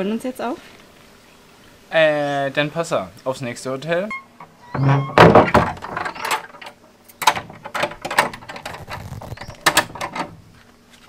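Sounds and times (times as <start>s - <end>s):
door latch clicking and rattling: 4.8s - 10.3s.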